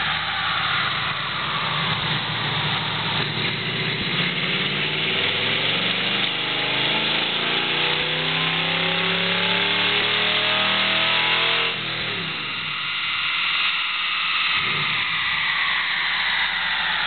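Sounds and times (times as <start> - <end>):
rollers and tyres spinning down: 0.0 - 11.1
engine at full throttle: 0.0 - 17.0.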